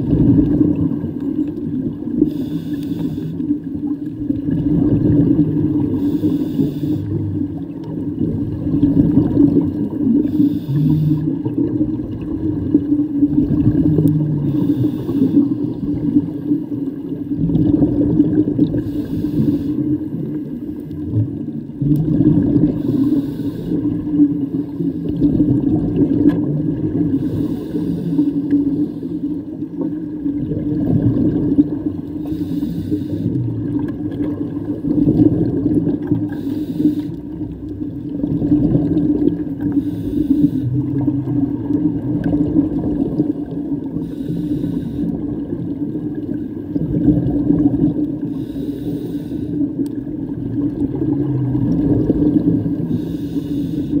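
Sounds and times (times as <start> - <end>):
exhaled bubbles: 0.0 - 54.0
regulator breathing underwater: 2.1 - 3.7, 5.6 - 7.6, 10.0 - 11.6, 14.0 - 16.8, 18.6 - 21.0, 22.5 - 25.5, 26.9 - 29.6, 32.0 - 33.8, 34.6 - 37.8, 38.7 - 41.4, 43.8 - 45.4, 48.0 - 49.8, 51.3 - 54.0.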